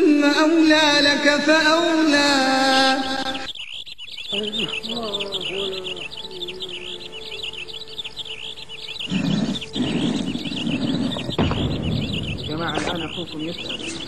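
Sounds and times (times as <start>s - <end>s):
birds chirping: 0.0s - 14.0s
faint wavering tone: 4.3s - 11.0s
low rushing noise: 11.2s - 14.0s.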